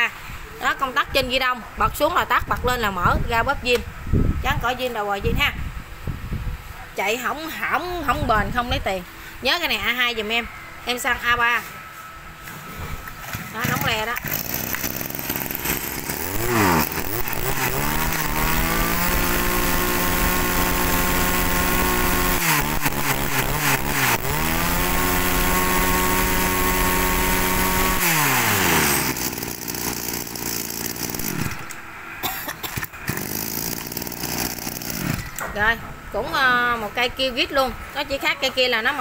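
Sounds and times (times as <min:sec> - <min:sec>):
brush cutter engine revving: 0:13.3 - 0:31.9, 0:32.8 - 0:35.4.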